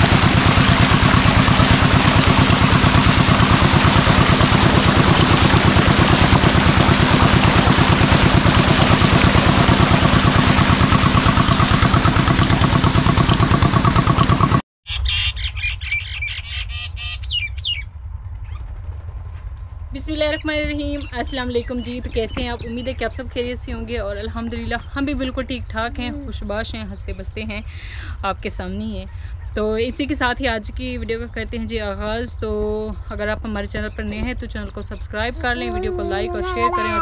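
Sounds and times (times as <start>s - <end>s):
engine running: 0.0s - 14.6s, 17.9s - 37.0s
low hum: 0.0s - 14.6s, 16.9s - 37.0s
birds chirping: 14.9s - 17.9s, 20.0s - 27.4s.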